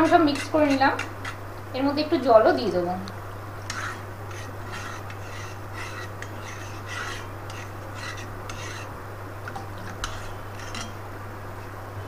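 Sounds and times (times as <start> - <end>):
spoon scraping metal pot: 0.0 - 1.4, 3.6 - 8.9, 9.9 - 11.0
steady low hum: 0.0 - 12.0.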